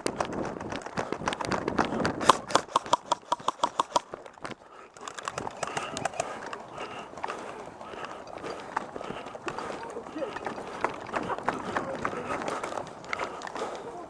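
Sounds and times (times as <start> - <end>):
paintball markers firing: 0.4 - 4.4, 5.0 - 6.9.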